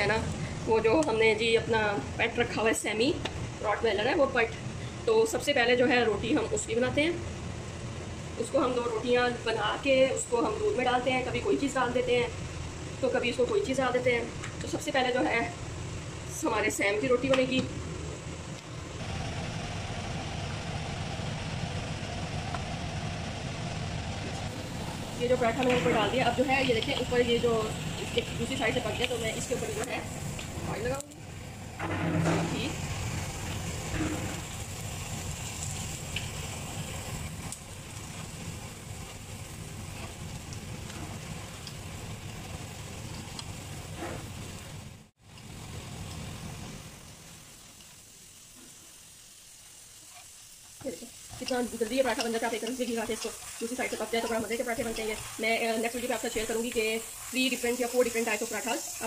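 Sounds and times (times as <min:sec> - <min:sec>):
low rumbling hum: 0:15.6 - 0:44.9
flatbread sizzling in oil: 0:18.0 - 0:59.0
hiss: 0:19.0 - 0:59.0.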